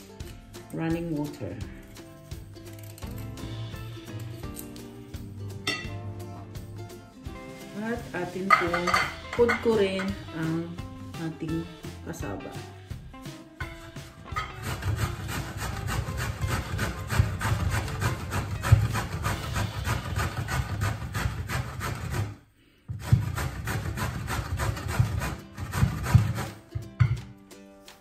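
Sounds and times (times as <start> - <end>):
root rasping on metal grater: 14.3 - 22.4, 23.0 - 26.6.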